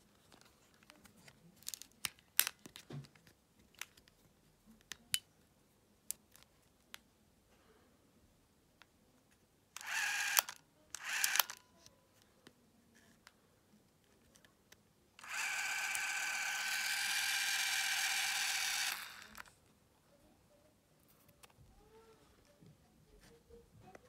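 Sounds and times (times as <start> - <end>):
clockwork camera motor whirring: 9.8 - 11.6, 15.2 - 19.5.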